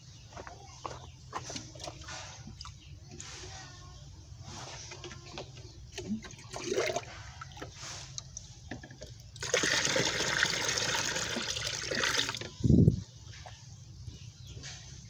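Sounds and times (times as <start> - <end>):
water pouring into a plastic tub: 6.0 - 7.9, 9.3 - 12.5.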